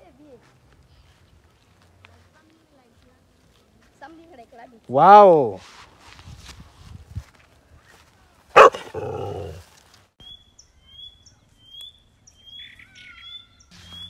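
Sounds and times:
dog barking: 0:08.6 - 0:09.6.

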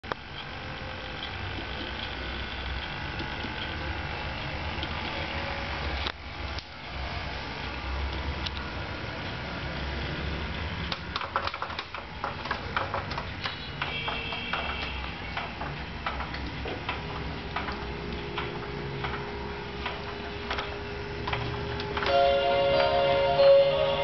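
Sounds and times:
plastic toy clicks and rattles: 0:10.8 - 0:19.2
short high electronic chime: 0:22.1 - 0:24.0
steady electronic tone: 0:22.1 - 0:24.0.

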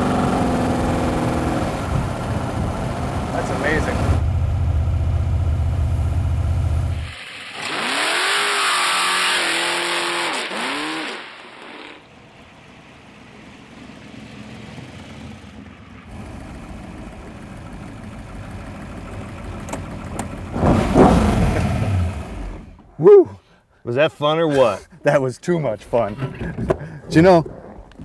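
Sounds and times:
hot rod engine accelerating past: 0:20.4 - 0:22.7.

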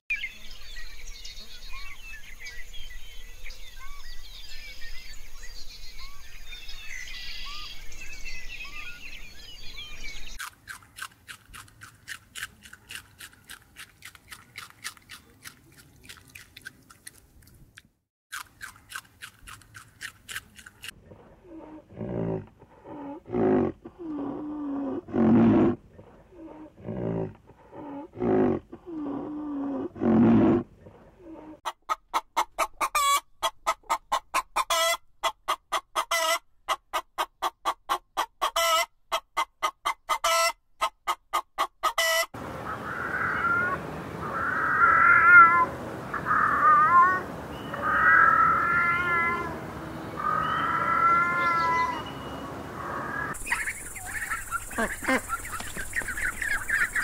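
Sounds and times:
loud pitched animal calls: 0:42.7 - 0:49.6, 0:50.2 - 0:57.0
dense high chirping calls: 0:50.2 - 0:57.0.

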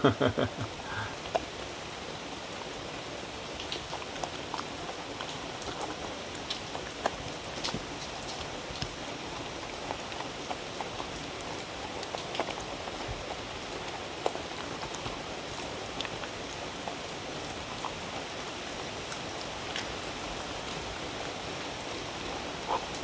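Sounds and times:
steady rain-like hiss: 0:00.0 - 0:23.0
dog licking and chewing: 0:03.6 - 0:18.3.

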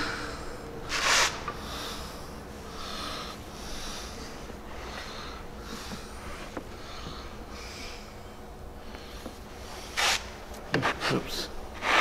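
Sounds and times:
person breathing: 0:00.0 - 0:00.7, 0:01.6 - 0:08.2.

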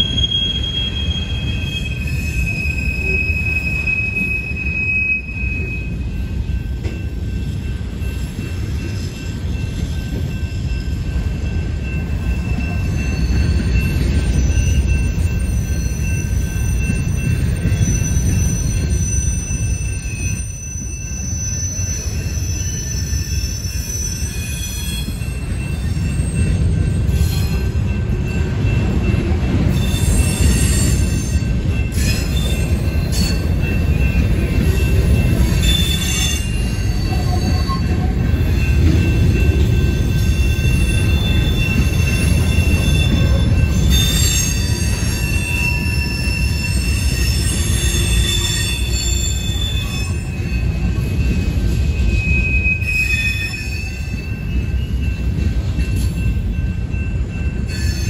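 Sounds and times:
high-pitched wheel squeal: 0:00.0 - 0:06.0, 0:13.1 - 0:27.6, 0:29.7 - 0:34.1, 0:35.2 - 0:38.7, 0:39.8 - 0:54.9, 0:57.7 - 0:58.0
railcar clanks: 0:00.0 - 0:58.0
train wheels rumbling on rail: 0:00.0 - 0:58.0.

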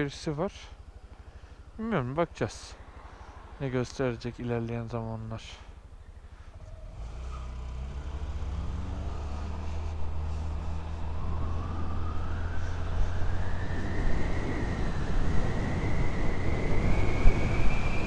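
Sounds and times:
scooter engine accelerating: 0:06.6 - 0:12.8
wind noise on microphone: 0:10.8 - 0:18.0.

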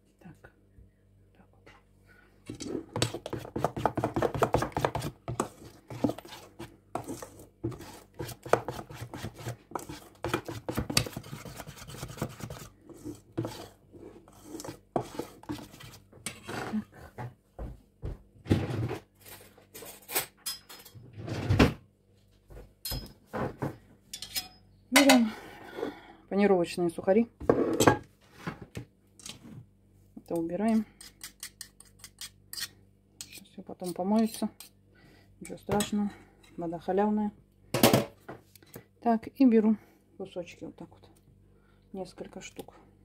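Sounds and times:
spoon scraping metal bowl: 0:02.5 - 0:16.7, 0:31.0 - 0:34.7.

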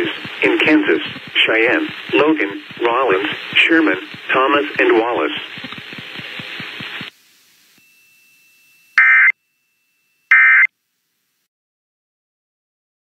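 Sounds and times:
synthesized voice speaking: 0:00.0 - 0:05.5
shrill digital data tones: 0:07.8 - 0:10.7.

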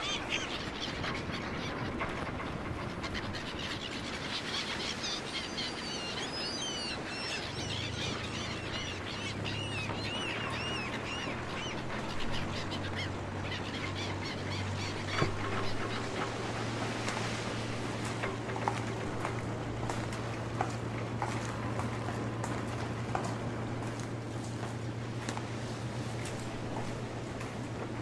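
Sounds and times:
bird calls: 0:00.0 - 0:27.9
steady noisy wash: 0:04.1 - 0:28.0
low steady hum: 0:07.1 - 0:28.0.

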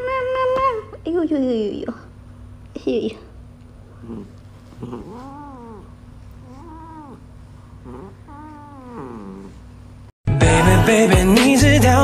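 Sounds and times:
cat grumbling murmurs: 0:03.9 - 0:09.7.

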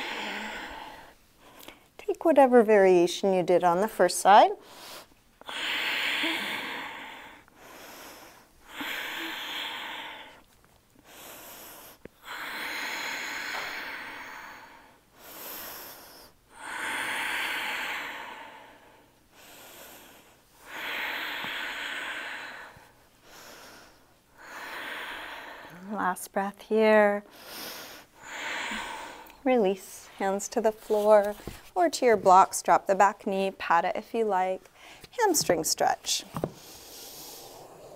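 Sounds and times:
woman breathing slowly: 0:00.0 - 0:02.0, 0:04.6 - 0:26.0, 0:27.2 - 0:30.4, 0:34.7 - 0:35.1, 0:36.5 - 0:37.9.

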